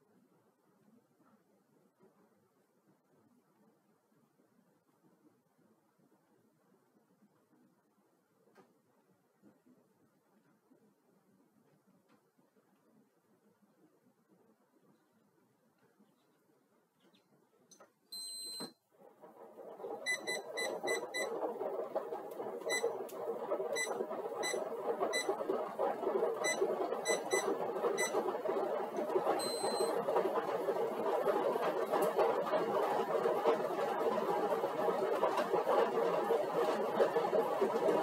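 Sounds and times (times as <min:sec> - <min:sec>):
exercise bike flywheel whirring: 0:19.0 - 0:38.0
electronic console beeps: 0:20.0 - 0:21.3, 0:23.8 - 0:25.3, 0:29.4 - 0:30.0.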